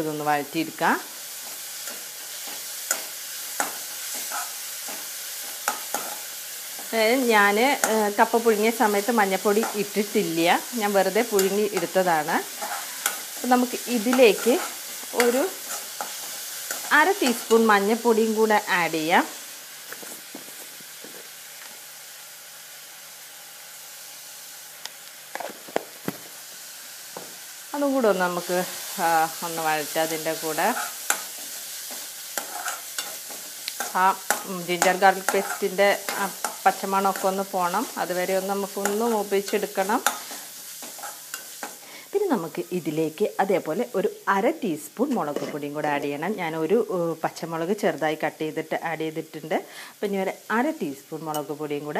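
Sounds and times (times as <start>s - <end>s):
food sizzling in oil: 0.0s - 51.9s
spatula scraping metal pan: 1.8s - 6.9s, 11.3s - 13.4s, 30.5s - 37.3s.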